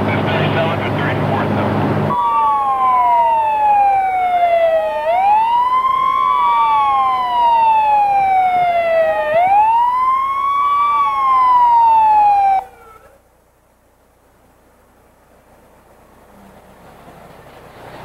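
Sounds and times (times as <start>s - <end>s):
emergency vehicle siren wailing: 0.4s - 13.2s.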